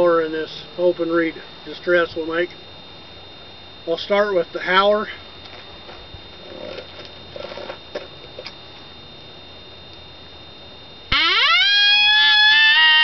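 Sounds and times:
faint rustles and clicks: 0:05.4 - 0:08.9
coyote call horn howl: 0:11.1 - 0:13.0.

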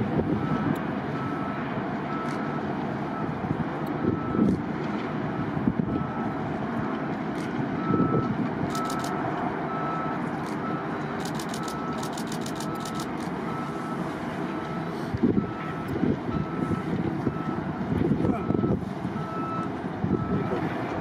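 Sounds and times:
turboprop aircraft engines: 0:00.0 - 0:21.0
short high beeps: 0:07.9 - 0:09.2, 0:11.2 - 0:14.0
wind buffeting microphone: 0:15.1 - 0:21.0.

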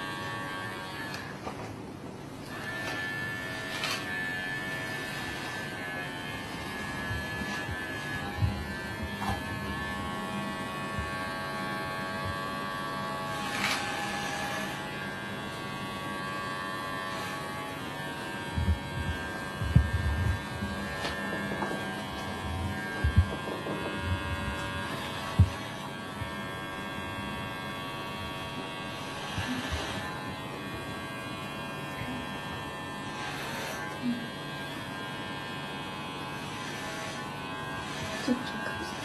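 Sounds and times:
electric hair clipper buzzing: 0:00.0 - 0:01.7, 0:02.4 - 0:39.0.

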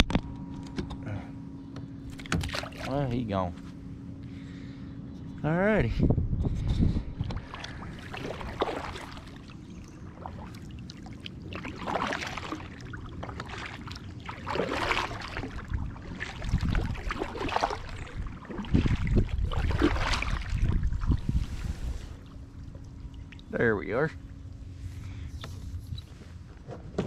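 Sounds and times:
paddle splashing in water: 0:02.2 - 0:02.9, 0:07.4 - 0:22.2
low rumble: 0:03.0 - 0:26.7.

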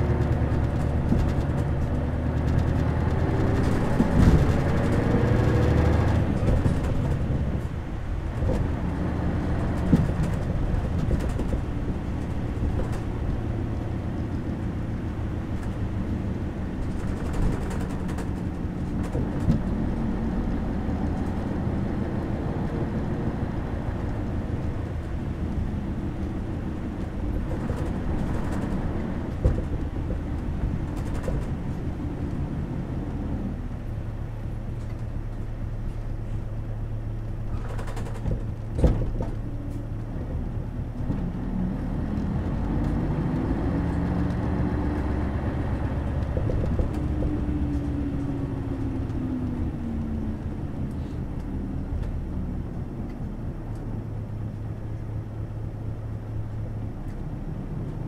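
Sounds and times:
bus engine drone: 0:00.0 - 0:58.0.

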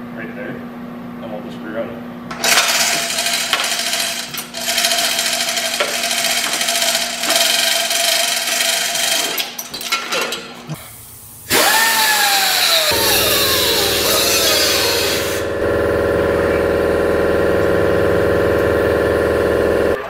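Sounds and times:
power tool whining: 0:02.3 - 0:09.6, 0:11.5 - 0:20.0.

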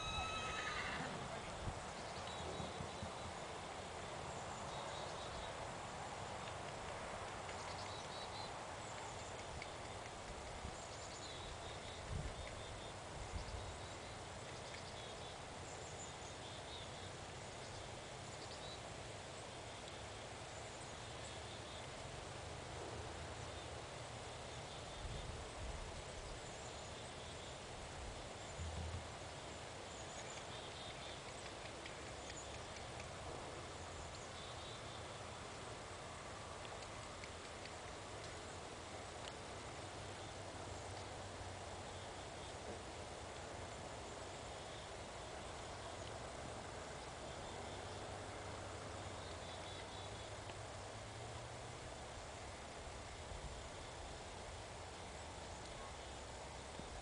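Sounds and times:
small birds chirping: 0:06.4 - 0:22.0, 0:28.2 - 0:35.6.

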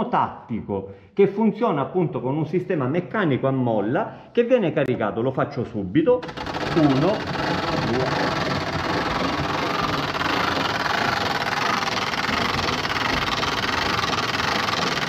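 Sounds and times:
hand crank winding spring clatter: 0:06.2 - 0:15.0.

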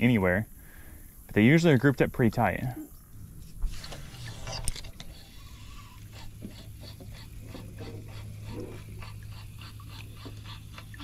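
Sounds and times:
low steady hum: 0:00.0 - 0:11.0
fishing reel ticking: 0:03.8 - 0:10.8.

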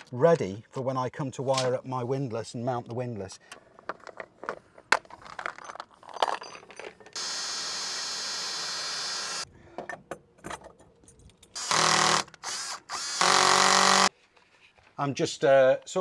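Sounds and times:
cordless drill drilling into steel: 0:07.2 - 0:09.4, 0:11.6 - 0:14.1.

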